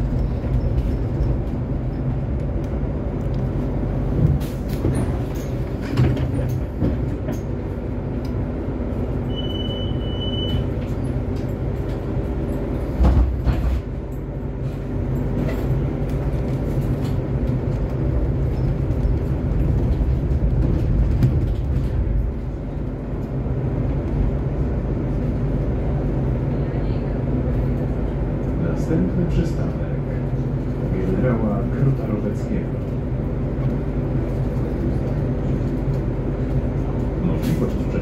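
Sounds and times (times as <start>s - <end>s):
trolleybus running rumble: 0.0s - 38.0s
body rattles and knocks: 4.1s - 7.6s, 15.3s - 22.6s.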